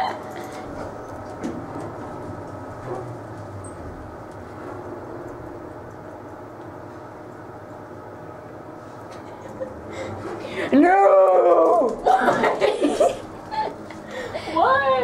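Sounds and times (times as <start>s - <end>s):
elevator car rumble and hum: 0.0s - 15.0s.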